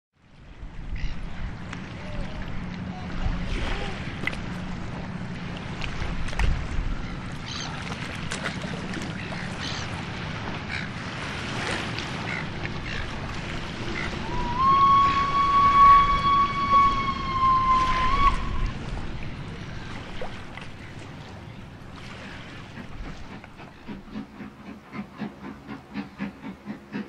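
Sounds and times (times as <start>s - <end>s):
low steady rumble: 0.5s - 24.6s
steam locomotive whistle: 14.0s - 18.8s.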